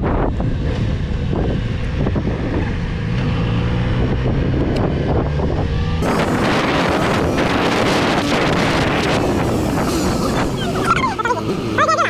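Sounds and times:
motorcycle engine cruising: 0:00.0 - 0:12.0
wind buffeting microphone: 0:00.0 - 0:12.0.

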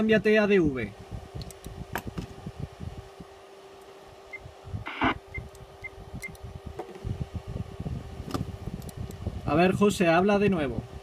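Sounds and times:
steady hum: 0:00.0 - 0:11.0
short high key beeps: 0:04.3 - 0:05.5.

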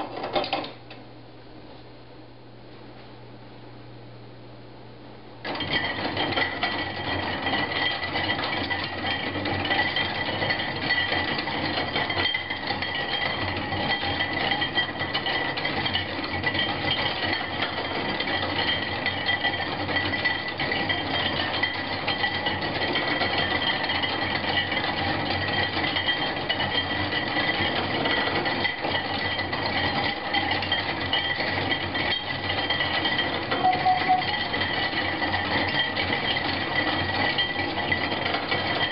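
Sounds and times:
dense metallic rattle of gears: 0:05.5 - 0:38.9
thin high-pitched tone: 0:33.5 - 0:34.5.

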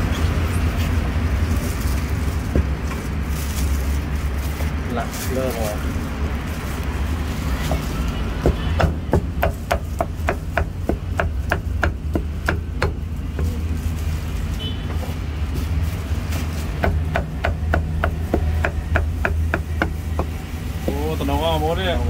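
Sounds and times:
cleaver chopping meat on block: 0:08.4 - 0:13.5, 0:16.8 - 0:21.0.

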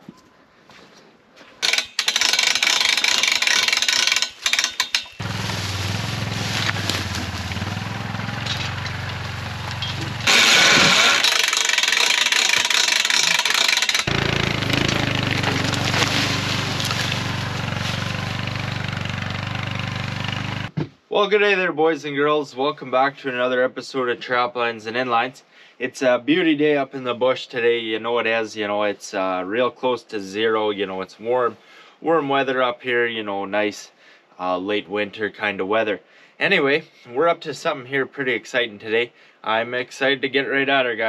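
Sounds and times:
quad engine running: 0:01.6 - 0:20.8.

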